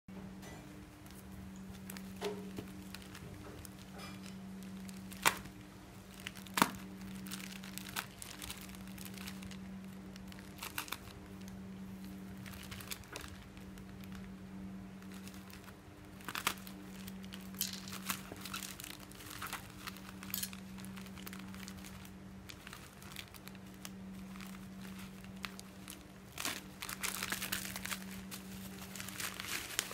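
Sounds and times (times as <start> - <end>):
low hum: 0.1 - 29.9
plastic crinkling and snapping: 0.7 - 29.9
knife cutting plastic bag: 1.8 - 14.3, 15.0 - 29.9.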